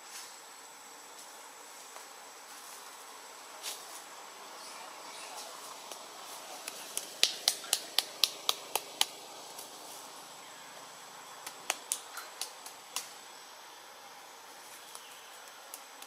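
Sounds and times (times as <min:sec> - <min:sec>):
faint steady hiss: 0:00.0 - 0:16.0
sharp dry clicks: 0:06.6 - 0:09.7, 0:11.4 - 0:13.2, 0:14.9 - 0:16.0.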